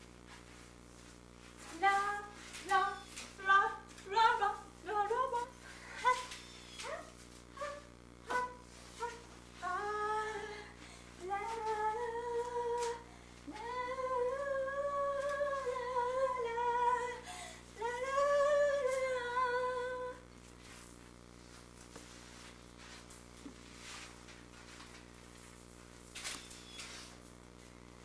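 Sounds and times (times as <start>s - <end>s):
woman humming: 1.7s - 20.2s.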